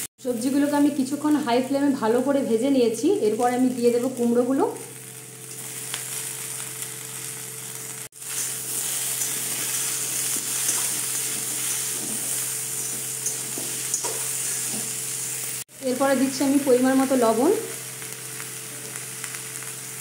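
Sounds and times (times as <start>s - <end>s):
vegetables sizzling: 0.0s - 20.0s
metal spatula scraping: 8.2s - 15.4s.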